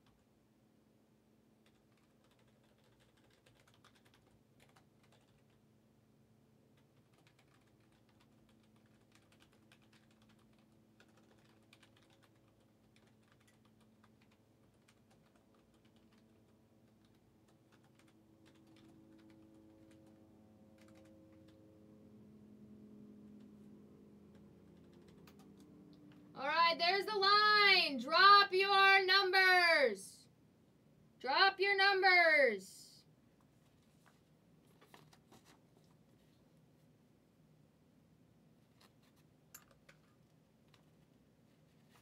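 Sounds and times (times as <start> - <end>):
keyboard typing: 1.6 - 5.7, 6.7 - 21.7, 24.2 - 26.3, 38.7 - 41.1
low hum: 18.2 - 26.6.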